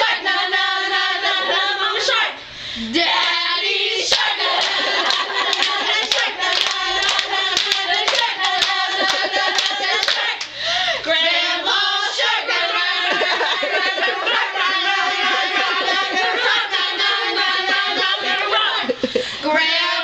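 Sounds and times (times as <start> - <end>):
girls singing a clapping song: 0.0 - 20.0
rhythmic hand claps: 4.1 - 10.6, 12.2 - 19.0.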